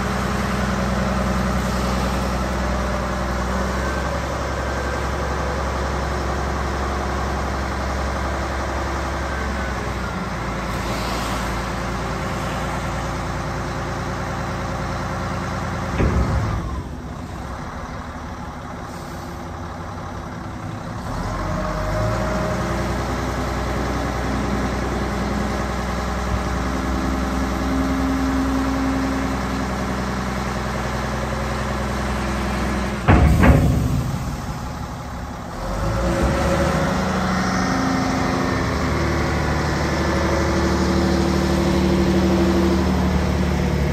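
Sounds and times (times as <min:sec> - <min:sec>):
diesel engine revving: 0:00.0 - 0:43.9
dump body clunk: 0:15.6 - 0:17.5, 0:32.5 - 0:37.3
dump body banging onto frame: 0:33.1 - 0:35.1.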